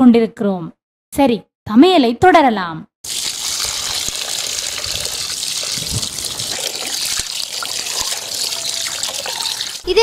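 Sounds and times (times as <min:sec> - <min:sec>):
water pouring and splashing: 0:03.0 - 0:10.0.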